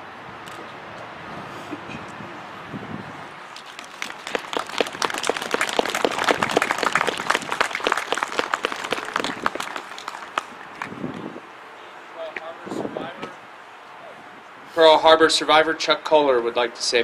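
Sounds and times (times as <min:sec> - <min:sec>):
audience applauding: 0:03.6 - 0:11.2.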